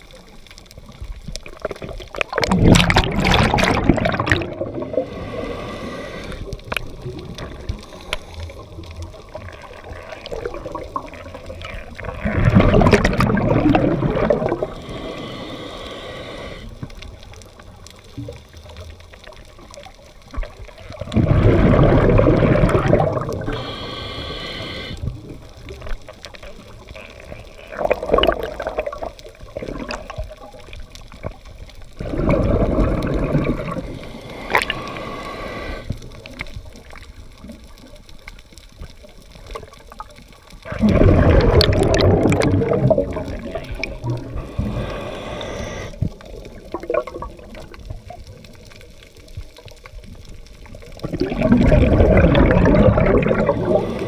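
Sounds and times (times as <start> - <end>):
gurgling exhaled bubbles: 0.0 - 38.2, 38.9 - 54.0
hissing regulator inhalations: 4.7 - 6.7, 14.4 - 16.9, 23.3 - 25.2, 33.5 - 36.0, 43.4 - 46.2, 53.4 - 54.0.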